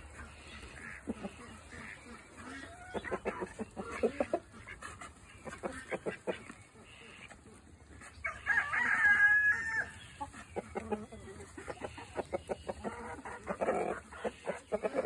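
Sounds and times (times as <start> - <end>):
birds pecking at feed in a bowl: 0.0 - 15.0
chickens clucking: 0.0 - 15.0
rooster crowing: 8.2 - 9.9.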